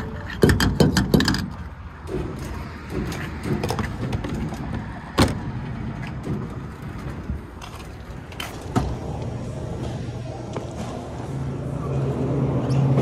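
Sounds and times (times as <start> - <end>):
outdoor noise: 0.0 - 13.0
fuel nozzle clicking and clanking: 0.2 - 8.9.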